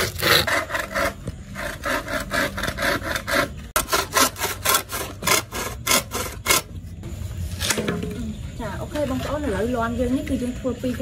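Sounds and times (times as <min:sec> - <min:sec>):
saw cutting bamboo: 0:00.0 - 0:06.8.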